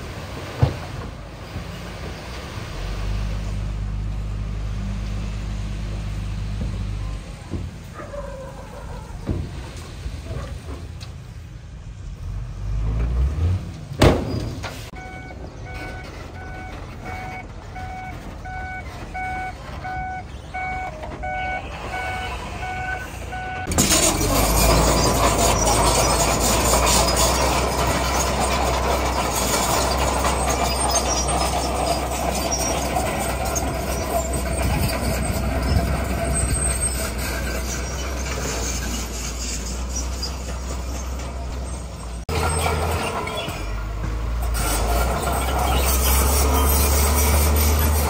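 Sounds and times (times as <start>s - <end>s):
heavy diesel engine: 0.0s - 48.0s
truck reversing beeper: 14.9s - 48.0s.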